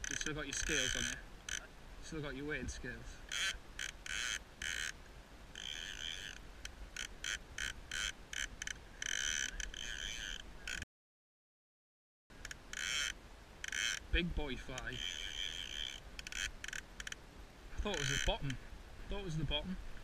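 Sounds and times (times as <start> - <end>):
fishing reel ratchet buzzing: 0.0 - 1.6, 3.3 - 5.0, 5.6 - 6.4, 7.0 - 10.8, 12.4 - 14.0, 14.9 - 17.2.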